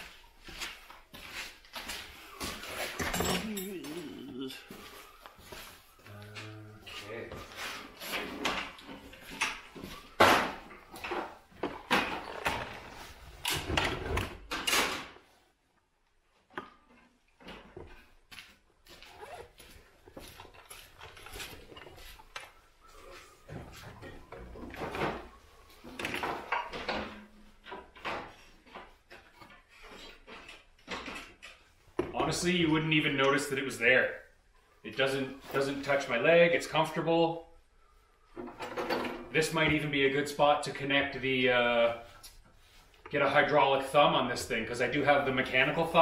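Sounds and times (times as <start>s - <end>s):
clothing rustling: 11.3s - 13.4s, 18.8s - 23.8s.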